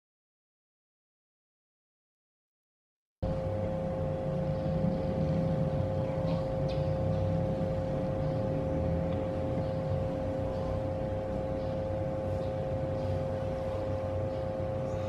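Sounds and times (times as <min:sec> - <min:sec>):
computer fans humming with whine: 0:03.2 - 0:15.0.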